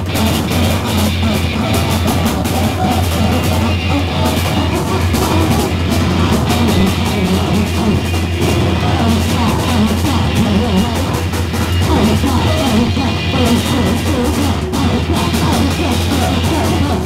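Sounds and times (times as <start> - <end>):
distorted guitar: 0.0 - 17.0
drum and cymbal hits: 0.0 - 17.0.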